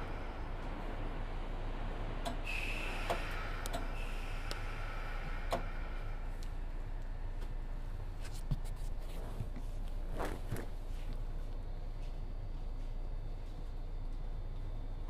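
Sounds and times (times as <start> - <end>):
train car low hum: 0.0 - 15.0.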